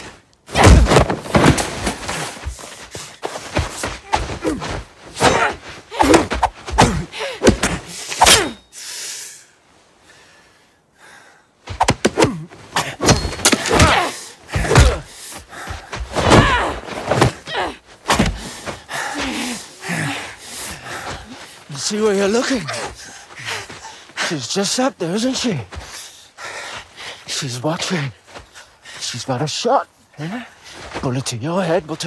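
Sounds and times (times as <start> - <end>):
punches and body blows: 0.0 - 8.6, 11.6 - 23.9
grunts and strained cries: 3.9 - 8.7, 12.1 - 21.4, 22.1 - 24.0.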